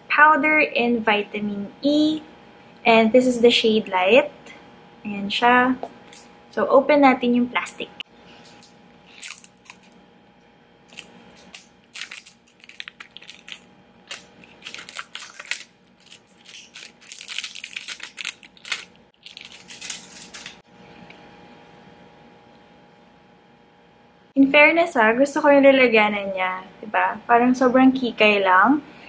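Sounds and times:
plastic shrink wrap crinkling: 0:08.5 - 0:10.0, 0:10.9 - 0:20.6.

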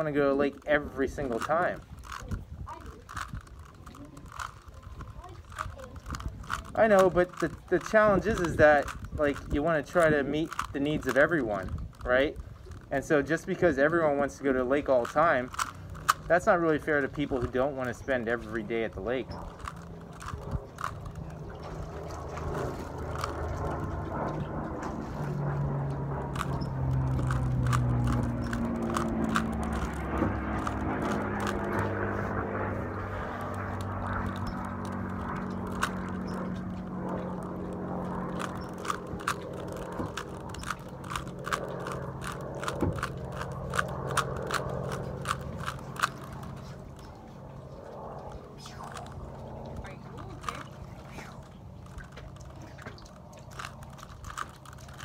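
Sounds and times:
steady low hum: 0:00.0 - 0:55.0
puzzle cube clicking and scraping: 0:00.5 - 0:13.6, 0:14.8 - 0:18.6, 0:19.2 - 0:21.3, 0:26.3 - 0:31.8, 0:33.4 - 0:36.6, 0:38.3 - 0:46.8, 0:48.6 - 0:49.2, 0:53.5 - 0:55.0.

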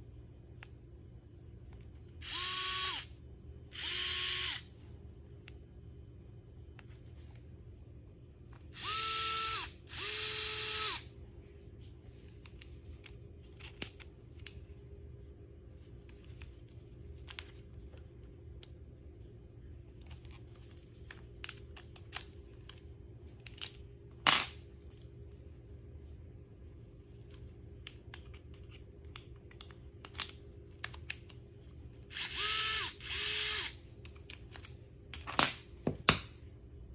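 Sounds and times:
electric screwdriver motor whining: 0:02.2 - 0:03.1, 0:03.8 - 0:04.6, 0:08.8 - 0:11.0, 0:32.1 - 0:33.8.

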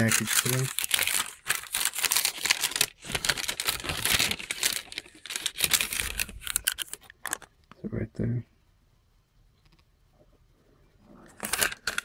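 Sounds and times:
packaging crinkling and rustling: 0:00.0 - 0:07.5, 0:11.3 - 0:12.0.

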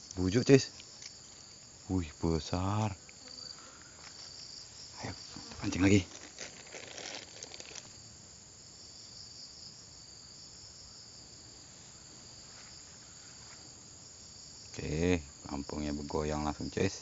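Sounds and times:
insects trilling: 0:00.0 - 0:17.0
gear rustling and clicking: 0:05.8 - 0:07.9.

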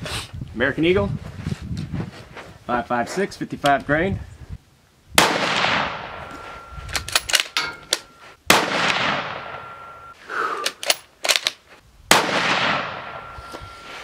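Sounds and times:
rifle shots echoing: 0:05.2 - 0:07.8, 0:08.5 - 0:10.1, 0:12.1 - 0:13.4
rifle action clicking: 0:06.9 - 0:08.1, 0:10.6 - 0:11.6.

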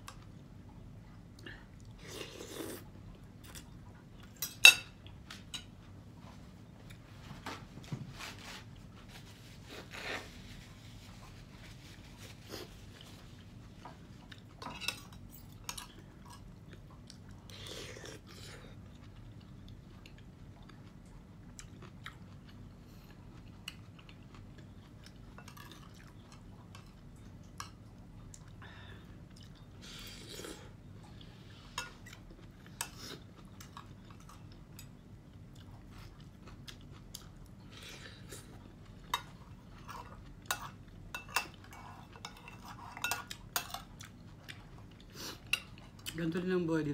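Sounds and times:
chewing: 0:12.2 - 0:28.6, 0:29.2 - 0:46.2
cutlery clinking on a plate: 0:40.5 - 0:43.9.

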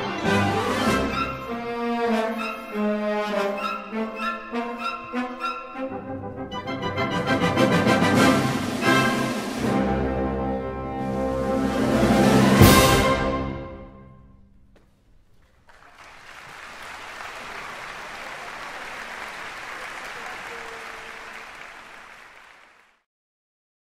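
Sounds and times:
audience applauding: 0:14.8 - 0:23.1.

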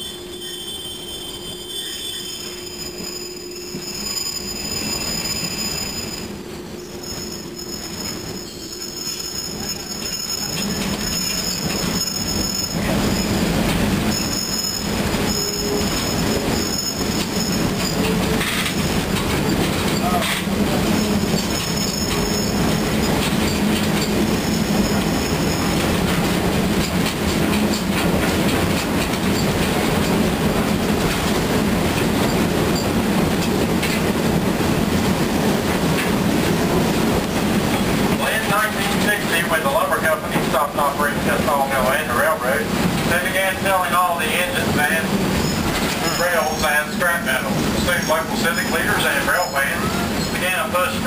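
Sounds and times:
wheel squeal: 0:00.0 - 0:13.5, 0:14.1 - 0:25.8, 0:45.4 - 0:46.9
wheels rumbling on rails: 0:00.0 - 0:51.0.

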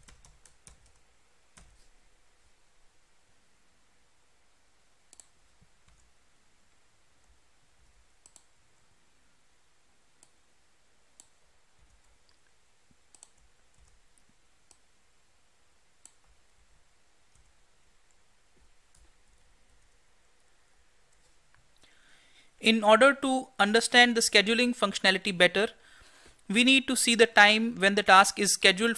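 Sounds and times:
mouse and keyboard clicks: 0:05.1 - 0:06.1, 0:13.1 - 0:14.0.

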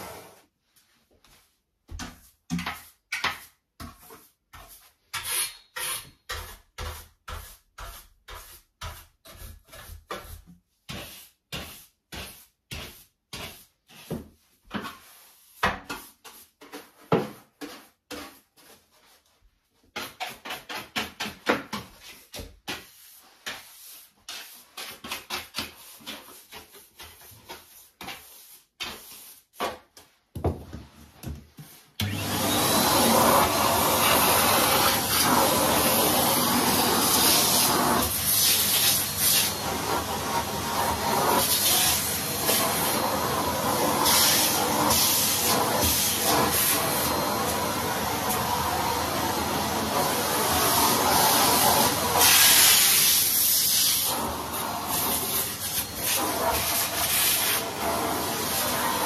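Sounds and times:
vacuum cleaner running: 0:32.0 - 0:59.0.

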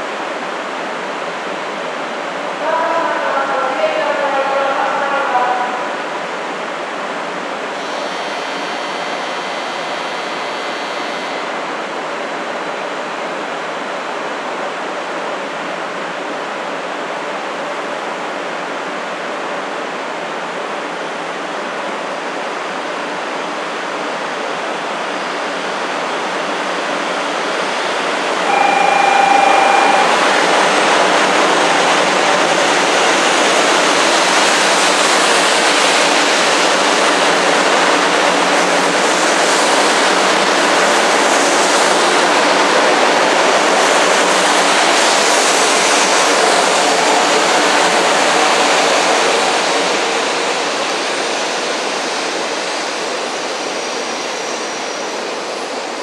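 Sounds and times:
short single-pitch tone: 0:07.8 - 0:11.6, 0:27.6 - 0:31.0
train rushing past: 0:22.3 - 0:56.0.

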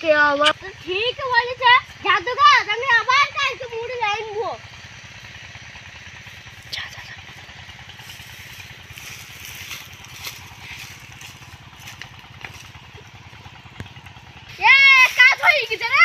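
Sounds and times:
motor humming: 0:00.0 - 0:16.0
dry leaves rustling: 0:04.7 - 0:16.0.

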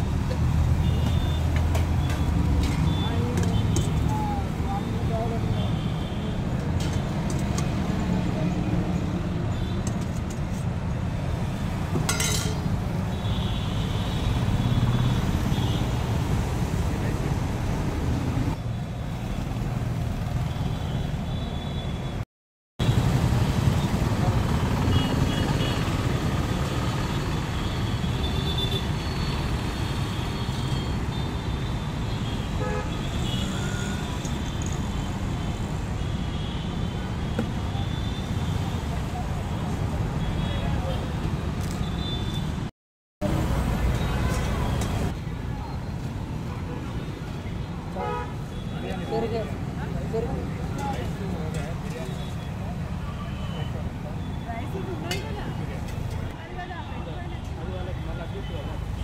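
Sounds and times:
traffic rumble: 0:00.0 - 0:22.2, 0:22.8 - 0:59.0
ladle clinking against pots: 0:12.1 - 0:12.7.

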